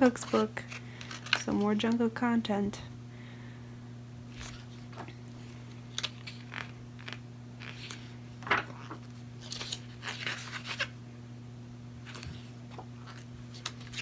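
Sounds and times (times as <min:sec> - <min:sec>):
steady low hum: 0:00.0 - 0:14.0
pages of a book turning: 0:04.3 - 0:10.9, 0:12.0 - 0:14.0.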